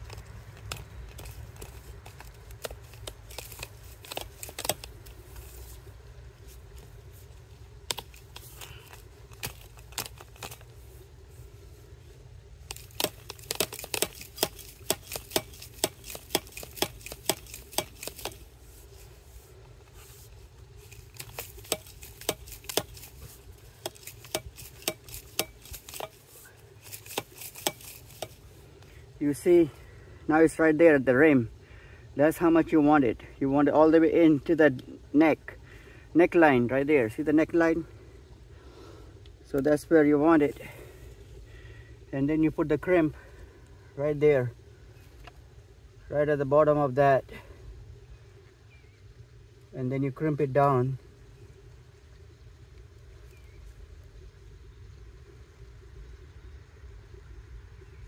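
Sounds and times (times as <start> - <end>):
plastic tubing clicking and creaking: 0.0 - 5.2, 7.8 - 10.8, 12.6 - 18.4.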